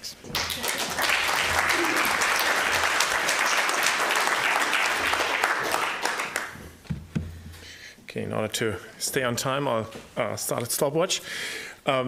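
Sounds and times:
audience applauding: 0:00.3 - 0:06.6.

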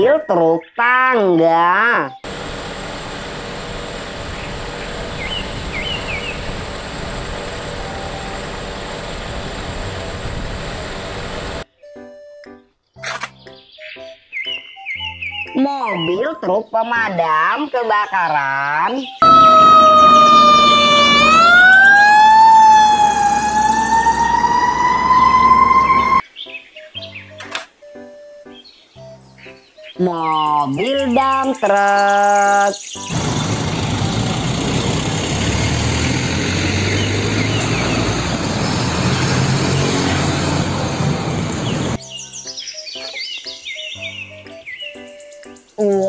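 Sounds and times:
fire truck siren wailing: 0:02.2 - 0:11.6, 0:19.2 - 0:26.2, 0:33.0 - 0:42.0
road noise: 0:02.2 - 0:11.6, 0:19.2 - 0:26.2, 0:33.0 - 0:42.0.

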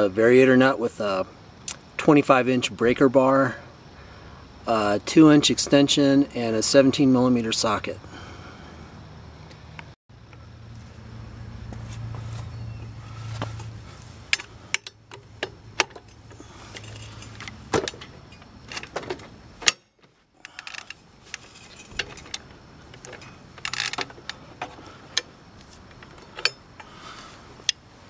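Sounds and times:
steel hand tools clinking: 0:15.8 - 0:18.5, 0:26.3 - 0:27.0.

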